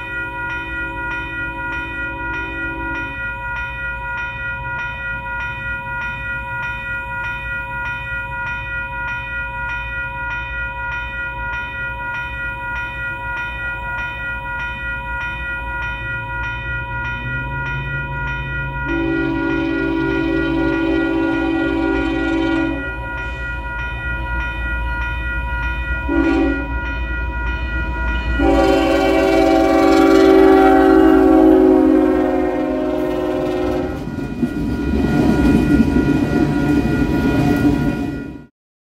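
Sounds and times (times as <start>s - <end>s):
crossing bell ringing: 0.0s - 38.5s
freight train rumble: 13.0s - 38.5s
train air horn: 18.9s - 23.0s, 26.1s - 26.8s, 28.4s - 34.1s.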